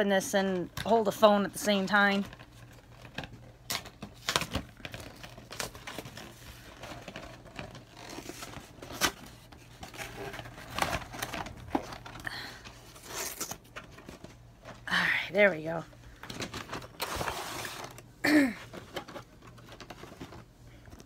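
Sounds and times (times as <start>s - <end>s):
packaging crinkling and tearing: 2.2s - 14.4s, 16.2s - 18.1s.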